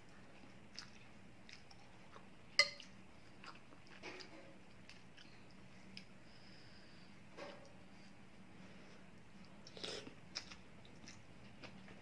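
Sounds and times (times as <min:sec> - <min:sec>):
person chewing: 0:00.4 - 0:06.1, 0:09.4 - 0:11.8.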